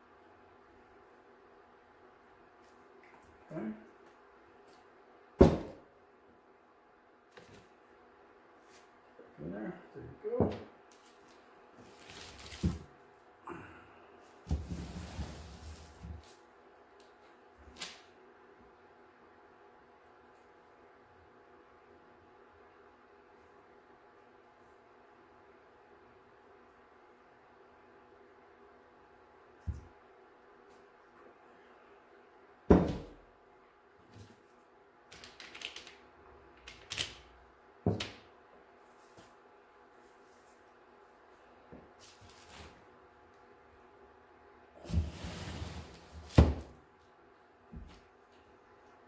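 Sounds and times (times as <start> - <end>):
mold sliding across countertop: 14.4 - 16.4, 44.8 - 46.5.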